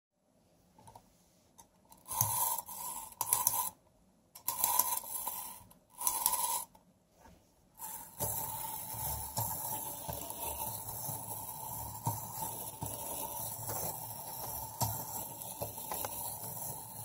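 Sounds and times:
clockwork spring whirring rasp: 0:01.9 - 0:03.8, 0:04.4 - 0:06.7, 0:07.8 - 0:17.0.

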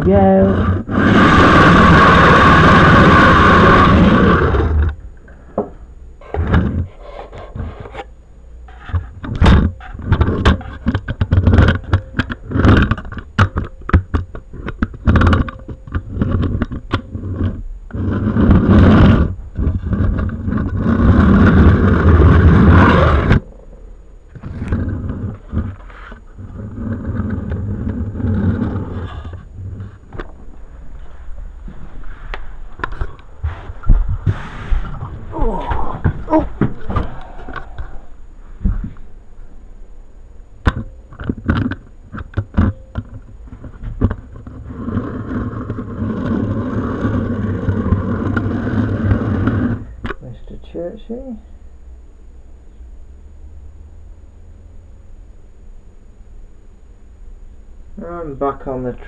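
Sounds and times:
knocks clicks and scrapes of handling: 0:08.7 - 0:22.3, 0:40.6 - 0:50.2.

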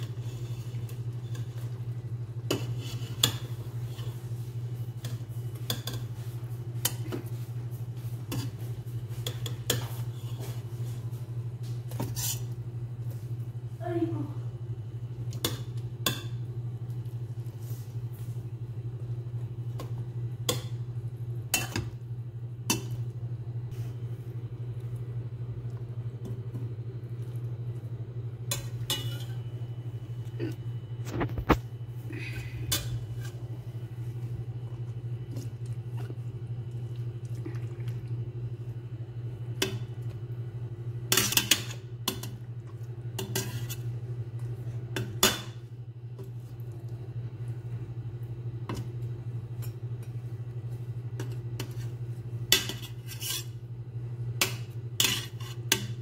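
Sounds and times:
steady low hum: 0:00.0 - 0:56.0
metal spoon scraping a pot: 0:02.5 - 0:04.1, 0:12.0 - 0:12.5, 0:43.2 - 0:43.9, 0:52.5 - 0:53.6, 0:55.0 - 0:56.0.

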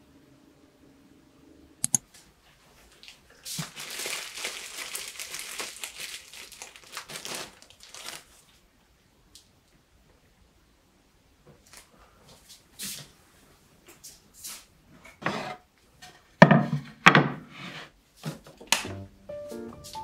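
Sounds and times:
sharp clicks: 0:01.8 - 0:02.0
plastic bag crinkling: 0:03.0 - 0:08.6.

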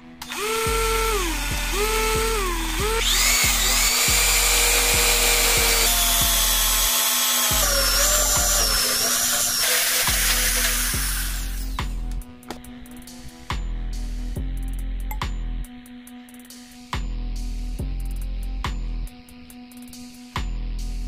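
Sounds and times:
electric drill whining: 0:00.0 - 0:12.6
background music with beat: 0:00.0 - 0:21.0.

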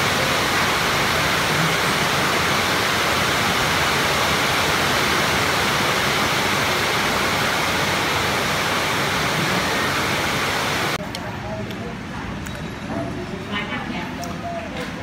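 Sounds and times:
steady rushing noise: 0:00.0 - 0:11.0.

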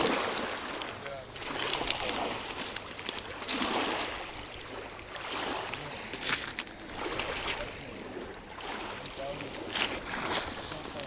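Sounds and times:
water splashing and lapping: 0:00.0 - 0:11.0.

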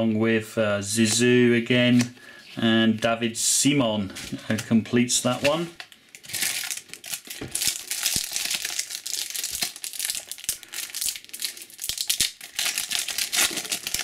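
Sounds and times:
foil wrapper crinkling: 0:05.5 - 0:14.0.

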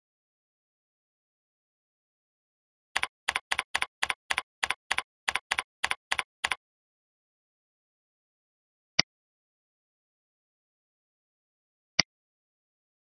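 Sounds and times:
keyboard typing: 0:03.0 - 0:06.6.

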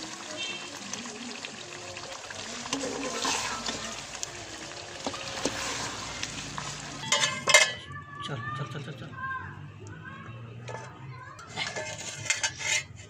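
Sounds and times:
food sizzling in a pot: 0:00.0 - 0:07.7.

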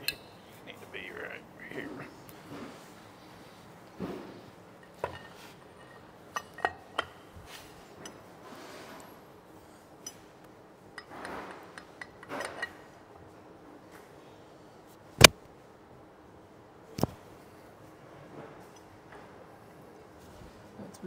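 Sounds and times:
steel parts clinking: 0:04.8 - 0:07.2.

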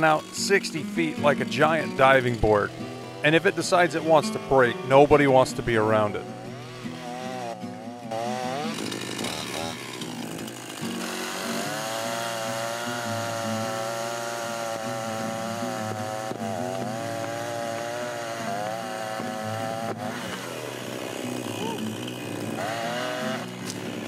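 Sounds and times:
chainsaw cutting wood: 0:00.0 - 0:24.0.

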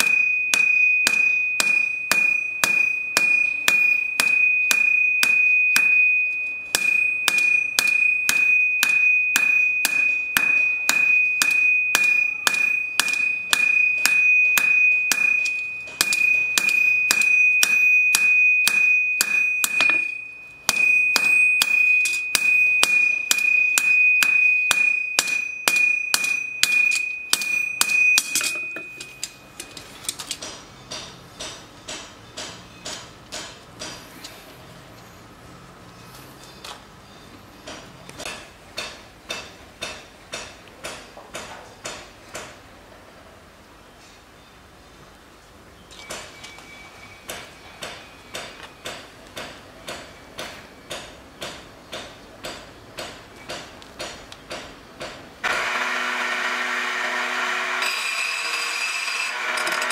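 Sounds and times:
hammer blows on anvil: 0:00.0 - 0:29.7
anvil ringing: 0:00.0 - 0:29.8.

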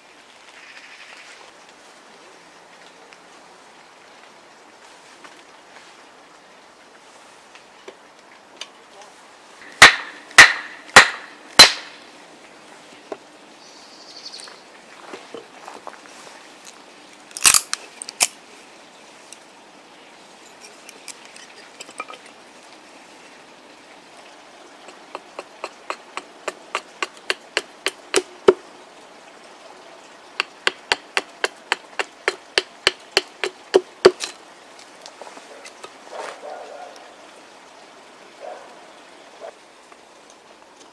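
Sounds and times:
hatchet chopping wood: 0:09.6 - 0:12.0, 0:24.9 - 0:28.6, 0:30.4 - 0:34.4.

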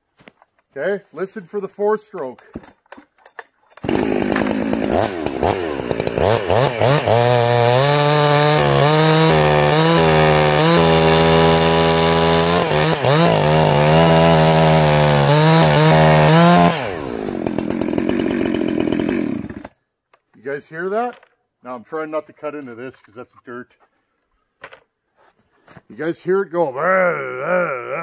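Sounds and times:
chainsaw cutting a log: 0:03.8 - 0:19.8.

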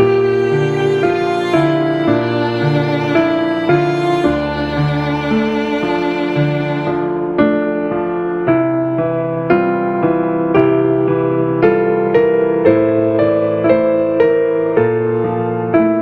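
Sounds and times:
slow piano melody: 0:00.0 - 0:16.0.

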